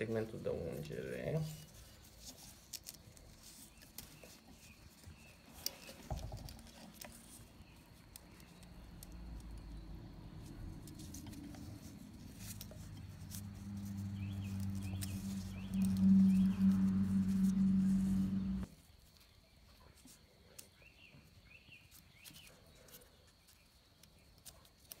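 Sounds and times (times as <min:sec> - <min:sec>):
rubber gloves rustling: 0:00.8 - 0:19.3
low steady hum: 0:05.6 - 0:18.7.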